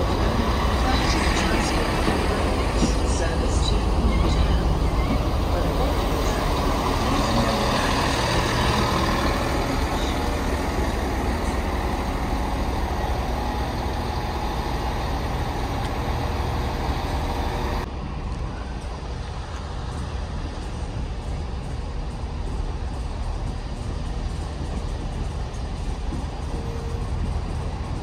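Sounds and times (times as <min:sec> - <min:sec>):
diesel train engine drone: 0:00.0 - 0:28.0
station background noise: 0:00.0 - 0:28.0.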